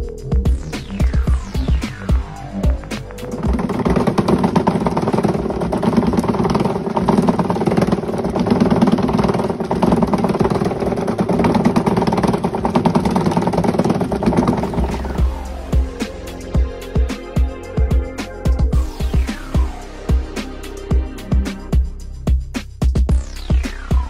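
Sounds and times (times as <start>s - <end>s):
vibration motor buzzing: 0.5s - 17.2s
water shaking in tub: 2.7s - 15.3s.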